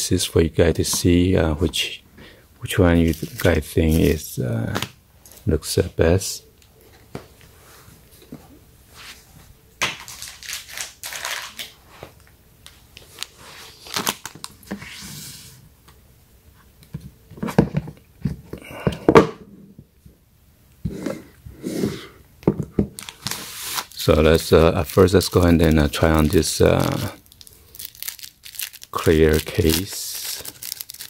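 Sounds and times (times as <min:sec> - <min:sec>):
plastic packaging crinkling: 0:09.9 - 0:11.8, 0:13.0 - 0:14.7, 0:23.0 - 0:31.0.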